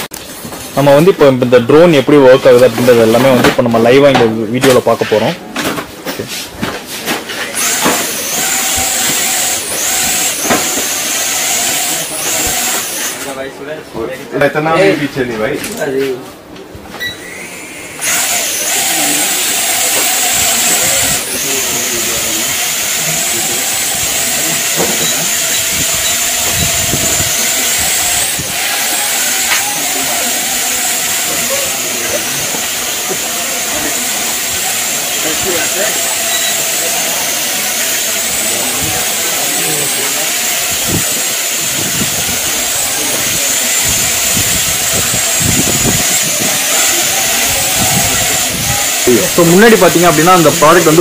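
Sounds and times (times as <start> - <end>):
toy drone propellers whirring: 7.4 - 13.4, 17.2 - 51.0.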